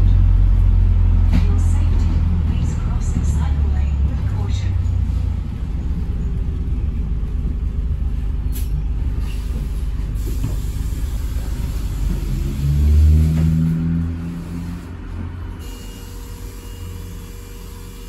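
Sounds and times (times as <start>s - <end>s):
bus engine and road rumble: 0.0s - 18.0s.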